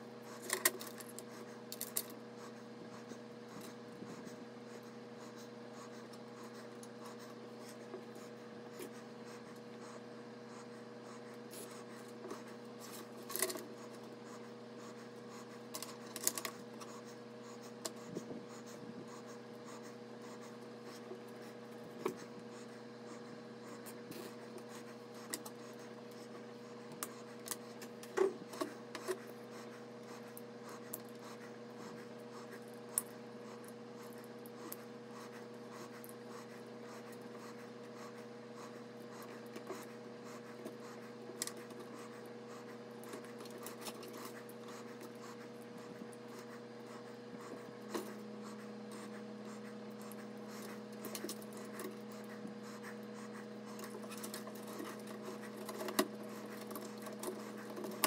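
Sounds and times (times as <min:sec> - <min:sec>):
steady background hum: 0:00.0 - 0:58.0
cables rustling and scraping: 0:11.4 - 0:14.4, 0:50.0 - 0:53.0, 0:53.7 - 0:58.0.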